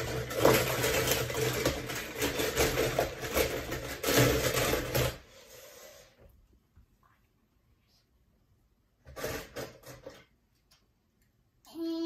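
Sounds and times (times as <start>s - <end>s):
toy cars rattling in a bowl: 0.0s - 5.3s.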